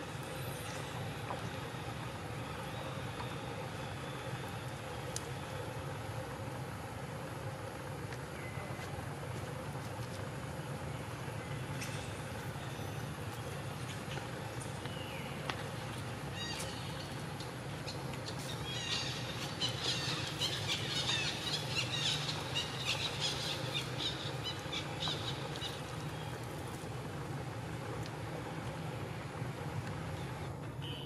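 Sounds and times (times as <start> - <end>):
steady low hum: 0.0 - 31.0
birds chirping: 12.6 - 26.7.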